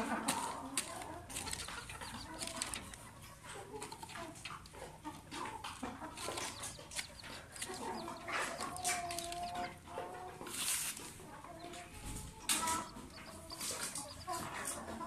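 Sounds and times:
chick peeping: 0.0 - 15.0
hen clucking softly: 0.0 - 15.0.

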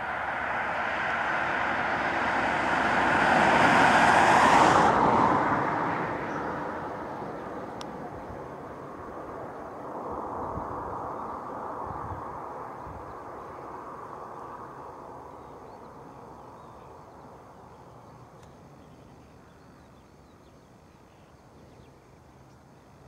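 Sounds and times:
vehicle going by: 0.0 - 18.3.

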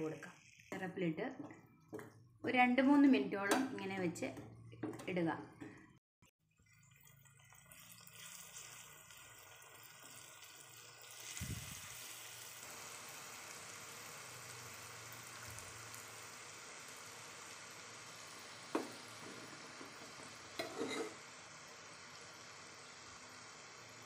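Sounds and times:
batter sizzling in hot oil: 6.5 - 24.0.

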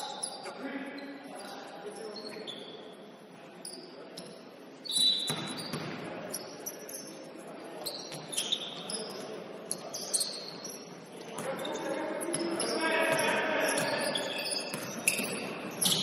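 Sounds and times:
sneakers squeaking on court: 0.0 - 2.9, 3.6 - 16.0
players' voices: 0.0 - 16.0
basketball bouncing: 14.7 - 15.3.

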